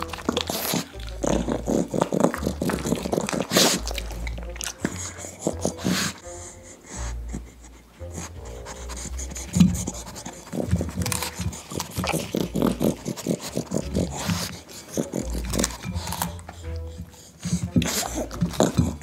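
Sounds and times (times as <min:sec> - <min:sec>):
crisp wet crunches: 0:00.0 - 0:05.9, 0:09.6 - 0:16.4
dogs sniffing: 0:00.0 - 0:19.0.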